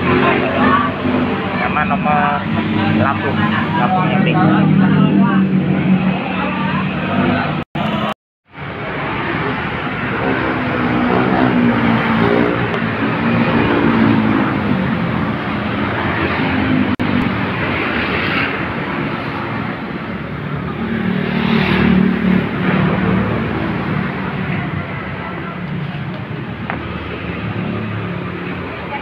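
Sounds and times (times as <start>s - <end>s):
motorcycle engine: 0.0s - 29.0s
road traffic passing: 0.0s - 29.0s.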